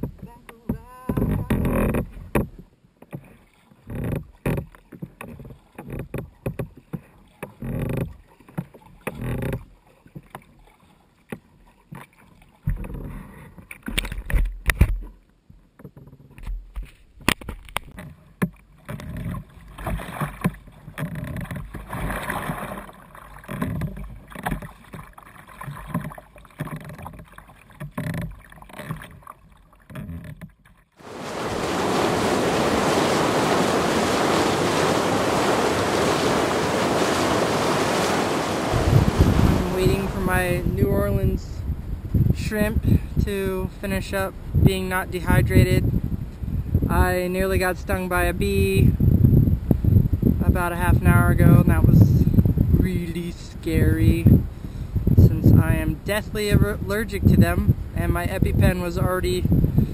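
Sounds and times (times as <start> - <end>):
paddle splashing into water: 16.7 - 41.3.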